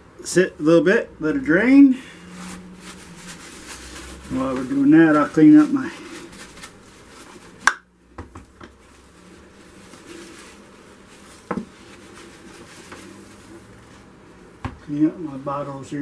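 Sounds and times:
paper towel rubbing bottles: 2.2 - 7.6, 8.8 - 14.3.

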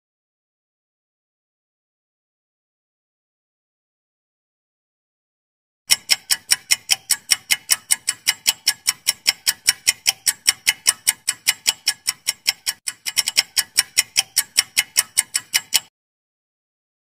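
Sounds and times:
clock ticking: 5.9 - 15.9.

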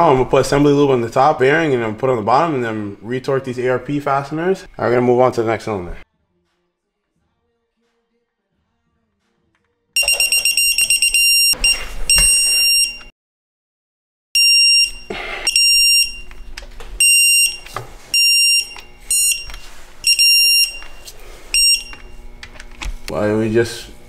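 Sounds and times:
electronic torque wrench beeping: 10.0 - 13.1, 14.4 - 16.3, 17.0 - 22.1.

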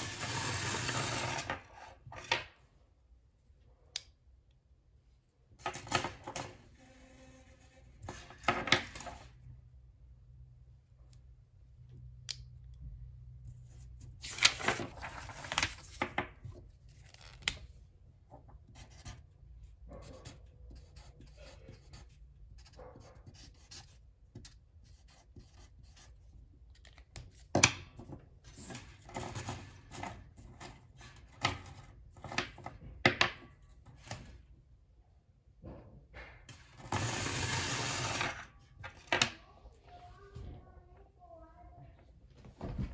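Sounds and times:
marker pen writing on paper: 18.7 - 26.3.

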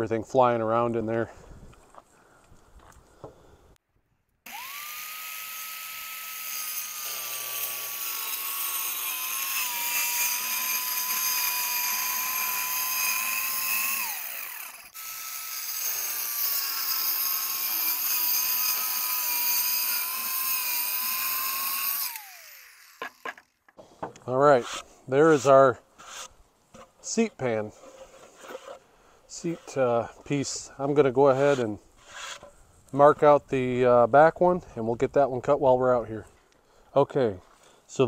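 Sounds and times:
circular saw cutting wood: 4.5 - 23.5, 24.4 - 26.4, 27.0 - 32.5.

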